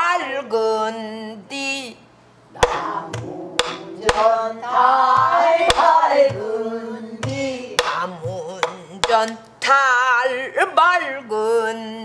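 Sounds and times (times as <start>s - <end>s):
stick strikes on drum shell: 2.6s - 4.3s, 5.1s - 6.4s, 7.2s - 9.4s
low drum thumps: 2.6s - 4.4s.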